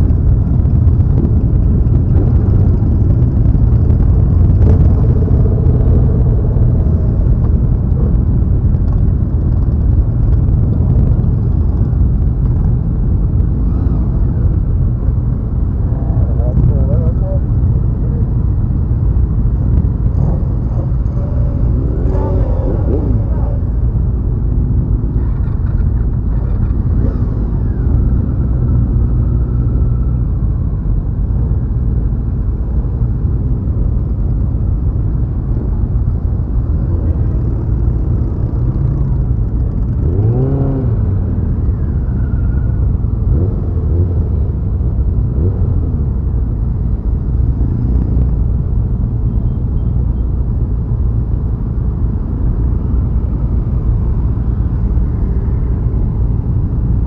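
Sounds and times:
motorcycle engines rumbling: 0:00.0 - 0:57.0
motorcycle engine revving: 0:36.8 - 0:41.6.

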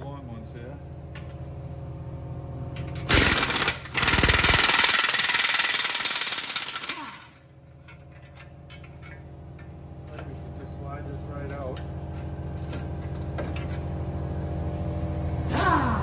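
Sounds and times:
air impact wrench hammering: 0:02.8 - 0:07.4.

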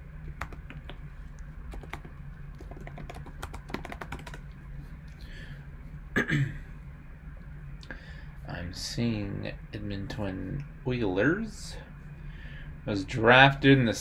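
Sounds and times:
computer keyboard key clicks: 0:01.7 - 0:04.4.

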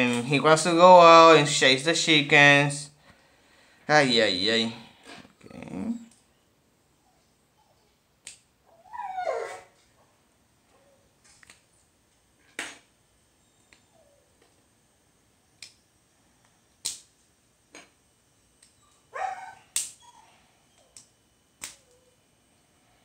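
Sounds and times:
dog whining: 0:07.0 - 0:08.0, 0:08.6 - 0:09.8, 0:13.4 - 0:14.4, 0:18.8 - 0:21.0.

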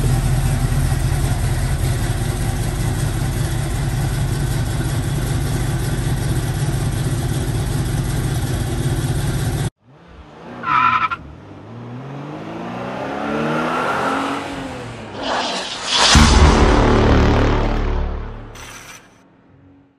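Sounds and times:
engine idling: 0:00.0 - 0:09.7
sweeping sound effect: 0:14.6 - 0:19.2.

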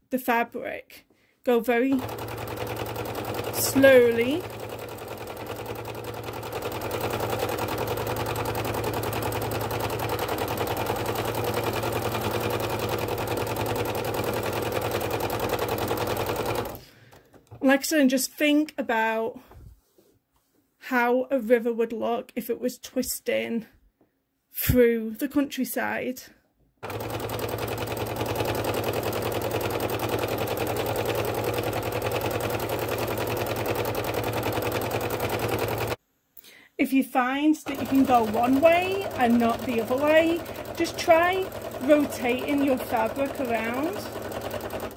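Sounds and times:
sewing machine needle clattering: 0:01.9 - 0:17.7, 0:26.8 - 0:36.0, 0:37.6 - 0:44.9.

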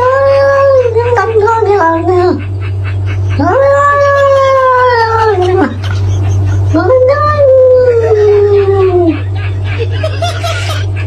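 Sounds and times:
steady low hum: 0:00.0 - 0:11.0
cat yowling: 0:03.4 - 0:05.5.

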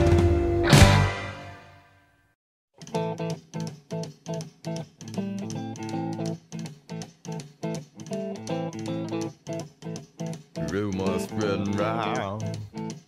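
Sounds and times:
instrumental guitar chords: 0:00.0 - 0:01.7, 0:02.8 - 0:13.0.

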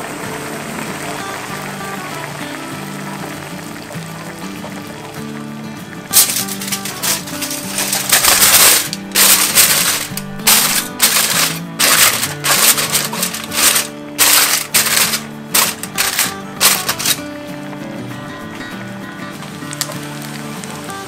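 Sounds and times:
background music with held notes: 0:00.0 - 0:21.0
rustling clattering bursts: 0:06.1 - 0:17.3.

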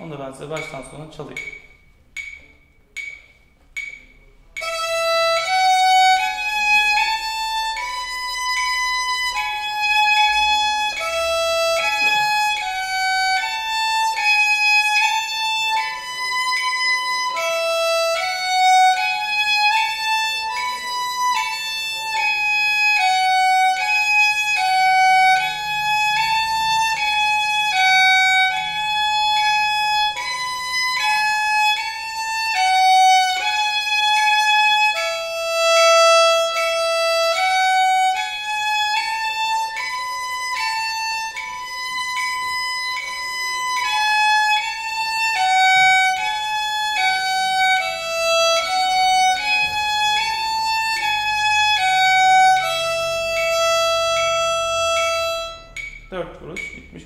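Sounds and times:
solo violin playing notes: 0:04.6 - 0:55.8.

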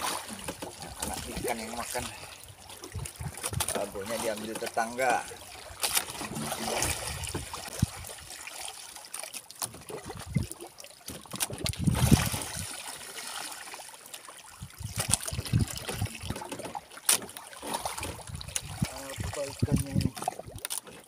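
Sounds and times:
boat bump: 0:00.0 - 0:02.1, 0:15.0 - 0:19.0
water lapping against boat: 0:00.0 - 0:21.0.

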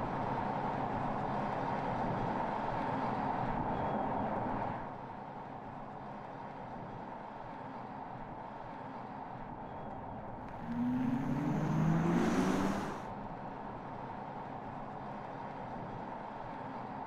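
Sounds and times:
low engine hum: 0:09.4 - 0:15.0
tyre and road noise: 0:10.4 - 0:13.1.

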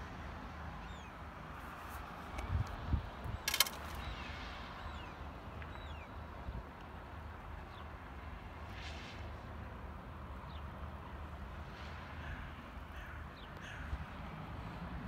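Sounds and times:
wind rumble on microphone: 0:02.3 - 0:04.2
short rattle: 0:03.4 - 0:04.0.

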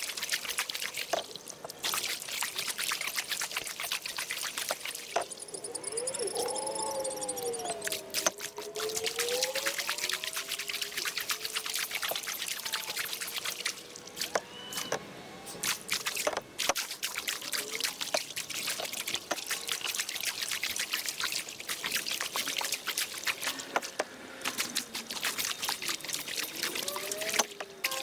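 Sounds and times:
water dripping off paddle: 0:07.5 - 0:14.9, 0:15.6 - 0:28.0.

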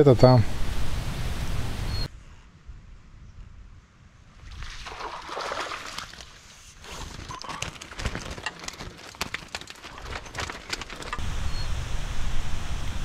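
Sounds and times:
water splashing and sloshing: 0:04.4 - 0:11.2
net crackling on brushwood: 0:06.8 - 0:11.2.

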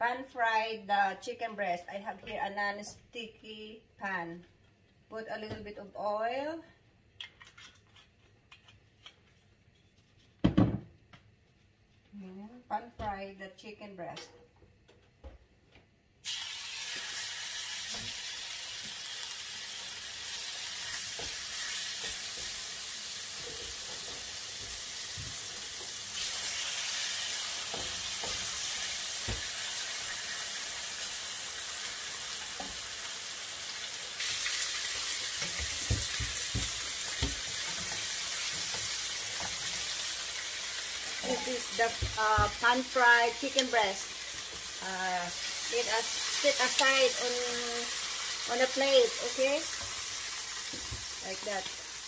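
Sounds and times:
chicken sizzling in hot oil: 0:16.2 - 0:52.0.

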